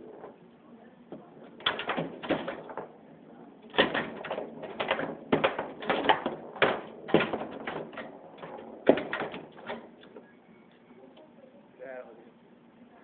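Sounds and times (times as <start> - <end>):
foosball ball and rods knocking: 0.0 - 0.4, 1.1 - 10.2.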